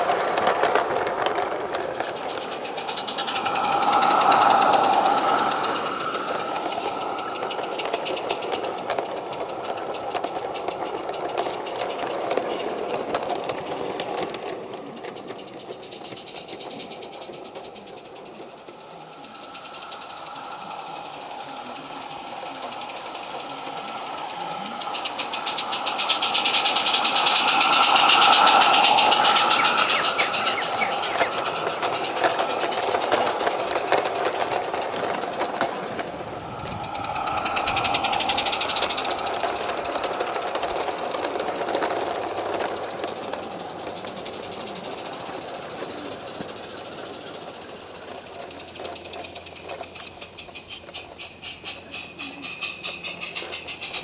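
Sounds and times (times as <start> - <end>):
steam hissing: 0.0 - 54.0
steam locomotive exhaust beat: 0.0 - 54.0
wheels rattling on track: 0.0 - 54.0.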